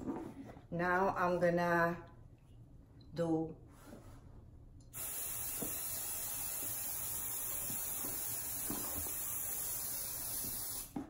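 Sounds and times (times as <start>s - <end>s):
aerosol can spraying: 5.0s - 11.0s.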